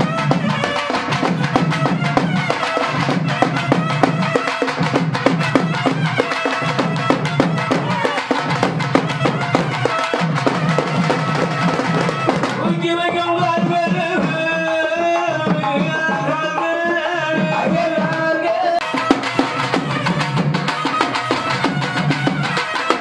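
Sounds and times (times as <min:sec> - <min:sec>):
double-reed pipe melody: 0:00.0 - 0:12.5, 0:18.8 - 0:23.0
rapid frame drum beat: 0:00.0 - 0:23.0.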